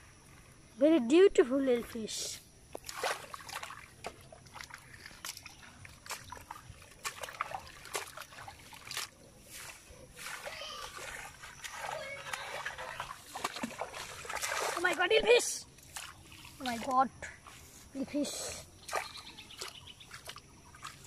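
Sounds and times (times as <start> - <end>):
shallow water sloshing: 2.7 - 17.9, 18.8 - 21.0
water splashing into bucket: 2.8 - 9.2, 10.2 - 17.0, 18.8 - 21.0.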